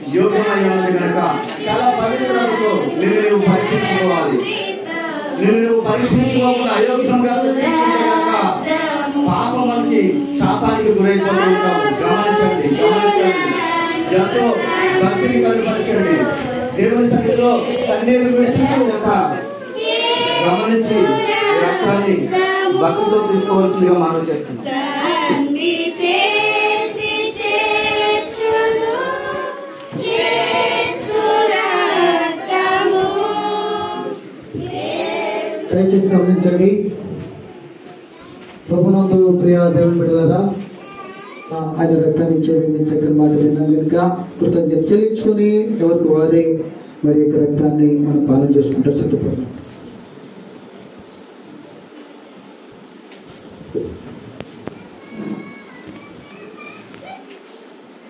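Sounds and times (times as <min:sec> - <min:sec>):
congregation singing: 0:00.0 - 0:38.0.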